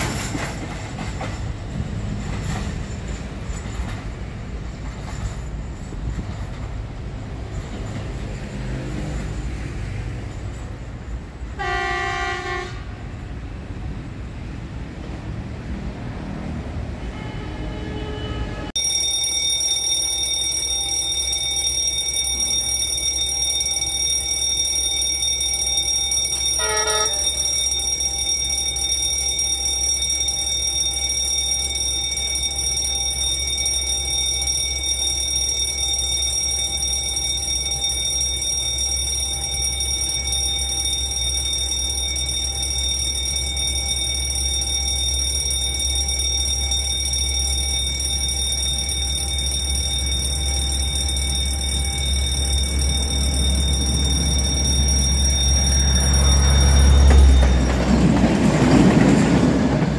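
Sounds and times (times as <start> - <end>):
diesel train running: 0.0 - 59.9
train horn: 11.6 - 13.2, 17.0 - 18.7, 26.6 - 27.5
electric warning bell ringing: 18.7 - 59.9.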